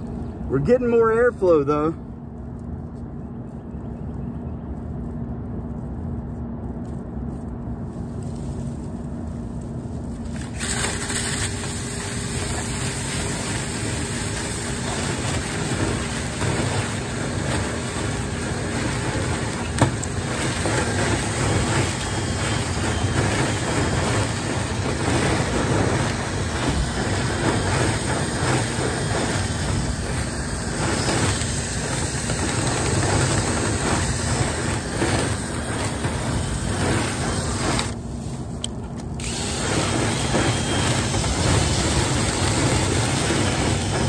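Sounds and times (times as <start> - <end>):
dryer vent hum and rushing air: 0.0 - 44.0
rotary brush rushing in duct: 5.0 - 44.0.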